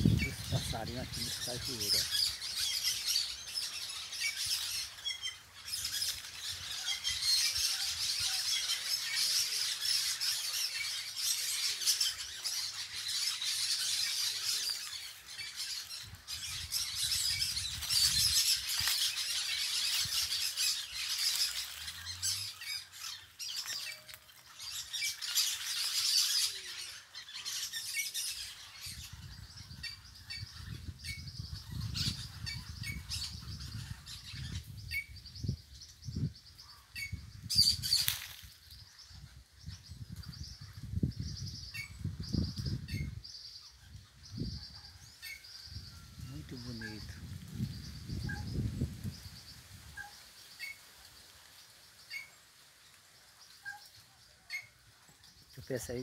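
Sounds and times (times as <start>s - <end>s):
parakeets chattering and squawking: 0.0s - 30.8s.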